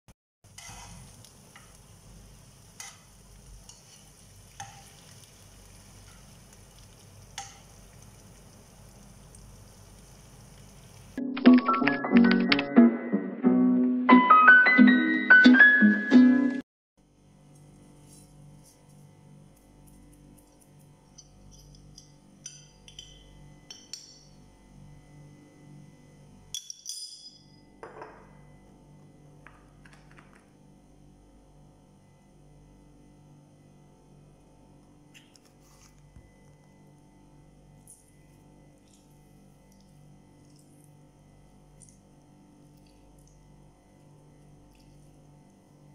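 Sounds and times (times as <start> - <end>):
wings sizzling in pan: 0.5 - 11.2
tongs clicking against pan: 7.4 - 7.7
small kitchenware clinking: 21.1 - 24.4, 26.5 - 28.4.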